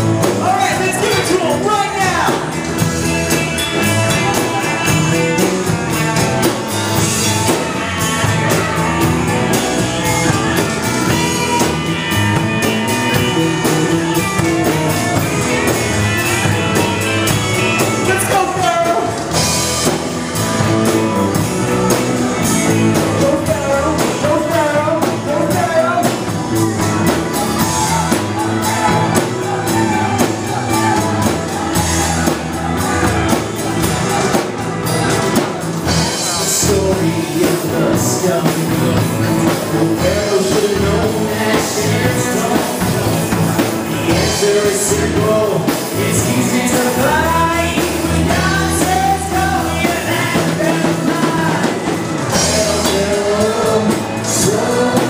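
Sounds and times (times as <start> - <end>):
rock band playing keyboard and drums: 0.0 - 55.0
person singing: 20.8 - 55.0.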